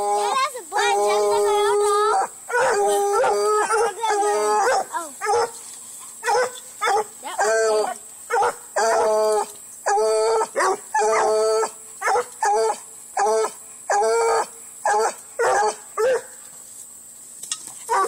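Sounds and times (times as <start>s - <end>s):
dog barking: 2.1s - 5.6s, 6.2s - 7.5s, 8.3s - 9.1s, 10.5s - 11.3s, 12.0s - 13.3s, 13.9s - 16.3s.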